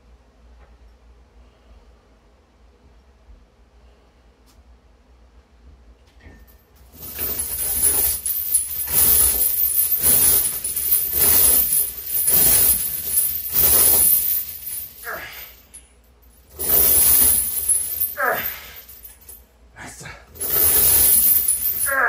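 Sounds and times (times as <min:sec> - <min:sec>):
steel chains clinking: 0:06.3 - 0:19.5, 0:20.3 - 0:22.0
person grunting: 0:15.0 - 0:15.6, 0:18.2 - 0:18.9, 0:19.8 - 0:20.3, 0:21.8 - 0:22.0.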